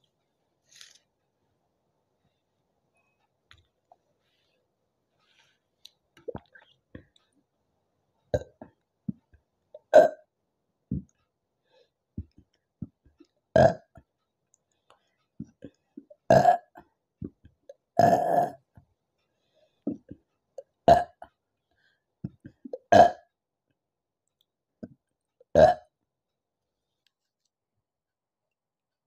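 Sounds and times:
woman burping: 9.8 - 10.2, 16.3 - 16.7, 18.0 - 18.6.

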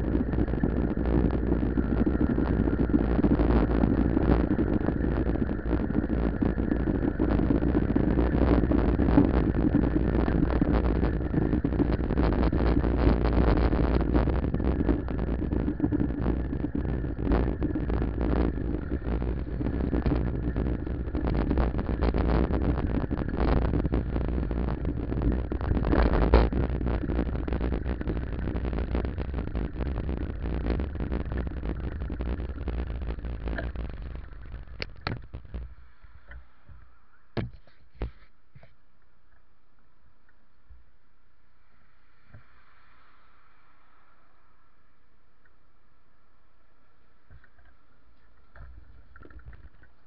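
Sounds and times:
wind buffeting microphone: 0.0 - 35.8
low hum: 0.0 - 50.0.

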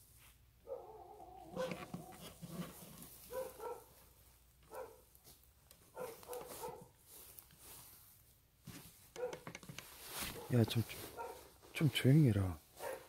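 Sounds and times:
dogs barking: 0.6 - 1.9, 3.2 - 4.0, 4.7 - 5.1, 5.9 - 7.0, 9.2 - 9.5, 10.3 - 11.5, 12.8 - 13.0.

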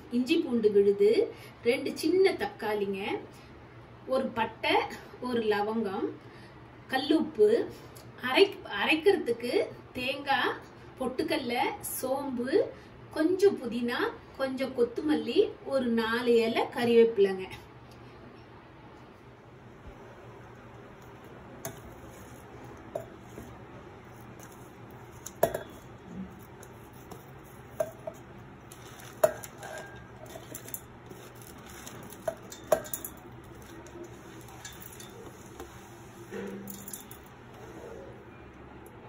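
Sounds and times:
faint steady hum: 0.0 - 39.0
steel plate knocking on steel jar: 25.4 - 25.8.

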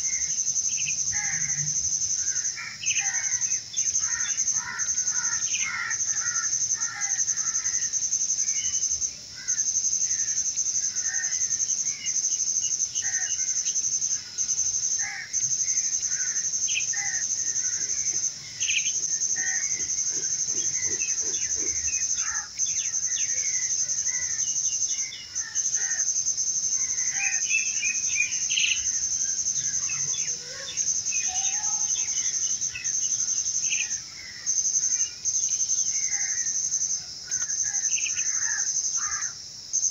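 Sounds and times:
high-pitched insect trill: 0.0 - 39.9
birds chirping: 15.7 - 26.0, 26.8 - 36.4.

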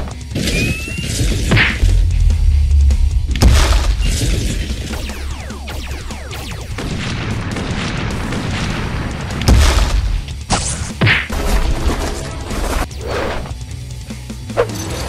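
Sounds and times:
background music: 0.0 - 15.0
hits: 0.1 - 12.4
loud boom: 1.8 - 10.2
blaster shot with zaps: 3.4 - 11.6.

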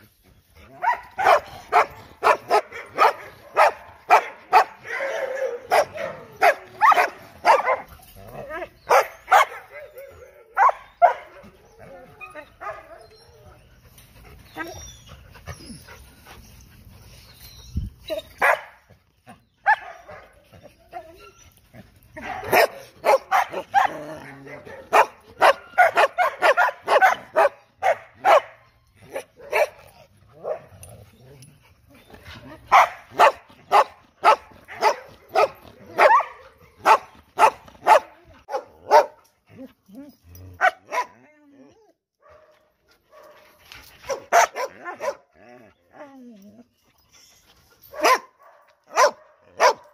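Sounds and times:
dogs barking: 0.8 - 7.9, 8.9 - 9.8, 10.5 - 11.4, 18.4 - 18.8, 22.2 - 30.7, 32.7 - 39.2, 40.6 - 41.2, 44.1 - 45.3, 47.9 - 49.9
dog whining: 14.5 - 16.6.

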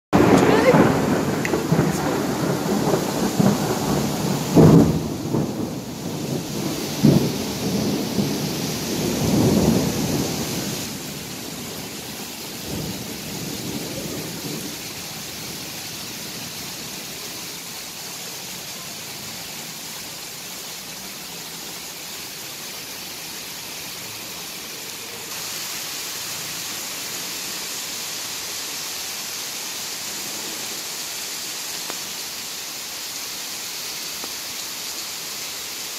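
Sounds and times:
heavy rain hissing: 0.2 - 35.9.

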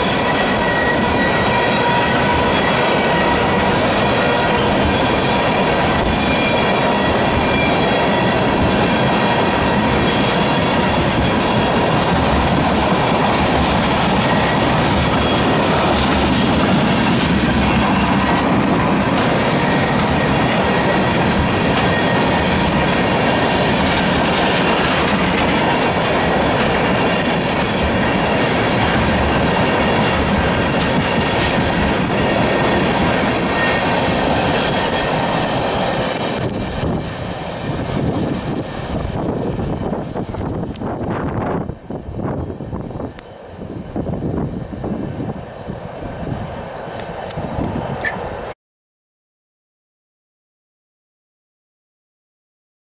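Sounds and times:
train wheels clattering on rails: 0.0 - 41.5.

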